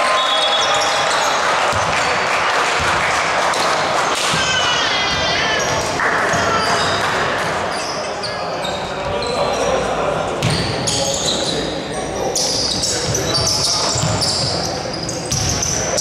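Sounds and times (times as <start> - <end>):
basketball bouncing on court: 1.7 - 2.2, 2.8 - 7.1, 10.4 - 10.8, 12.8 - 14.6, 15.2 - 15.8
shoes squeaking: 4.2 - 9.8, 10.4 - 16.0.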